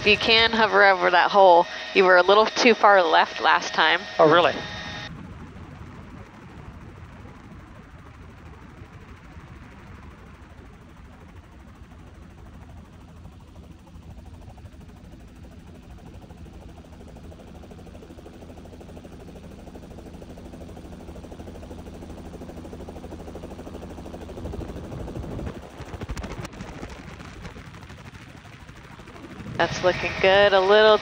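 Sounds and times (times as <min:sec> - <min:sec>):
downwash buffeting microphone: 0:00.0 - 0:05.0, 0:29.4 - 0:31.0
helicopter rotor and engine: 0:00.0 - 0:31.0.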